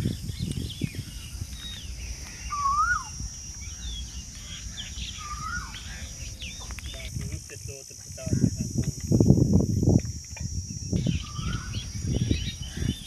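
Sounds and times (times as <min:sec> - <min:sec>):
rising and falling bird calls: 0:00.0 - 0:07.1, 0:10.9 - 0:13.0
birds chirping: 0:00.0 - 0:13.0
high-pitched hiss: 0:00.0 - 0:13.0.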